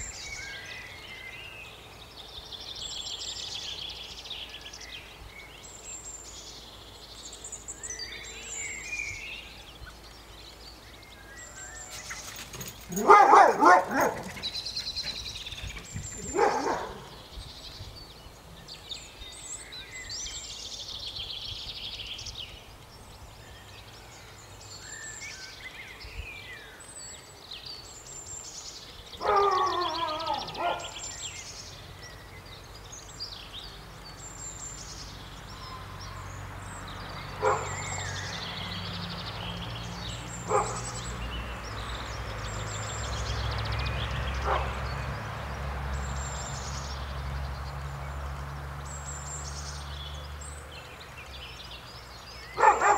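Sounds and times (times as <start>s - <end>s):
birds chirping and singing: 0.0s - 52.9s
dog yelping: 12.9s - 14.6s, 16.1s - 17.1s, 29.2s - 31.0s, 52.6s - 52.9s.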